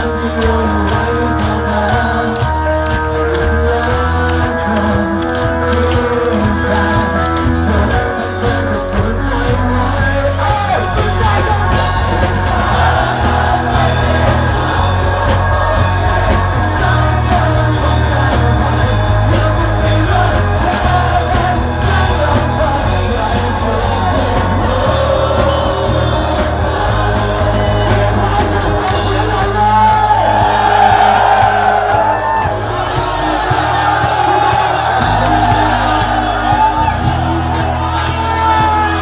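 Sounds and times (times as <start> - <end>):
loud music with heavy bass: 0.0 - 39.0
person singing: 0.0 - 39.0
voices yelling along: 24.4 - 39.0.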